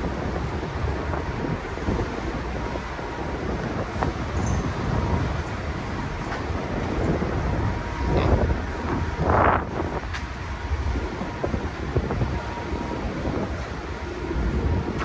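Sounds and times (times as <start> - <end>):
low rumble of a car ferry: 0.0 - 15.0
wind buffeting the microphone: 0.0 - 15.0.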